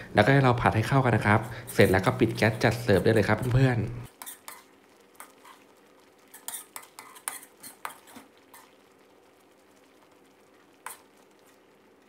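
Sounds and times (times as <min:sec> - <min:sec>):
faint steady hum: 0:00.0 - 0:06.4
spatula scraping a metal pan: 0:01.3 - 0:02.1, 0:04.1 - 0:05.6, 0:06.3 - 0:08.8.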